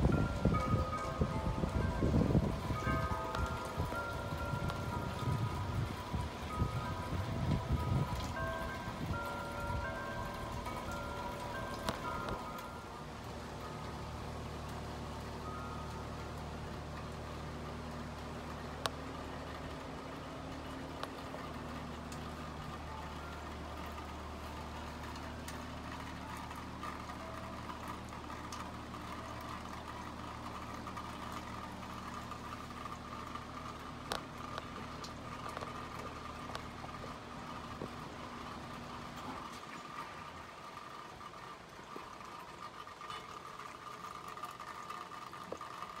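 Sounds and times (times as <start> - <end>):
metal wind chimes clinking: 0.0 - 17.1
low mechanical hum: 0.0 - 46.0.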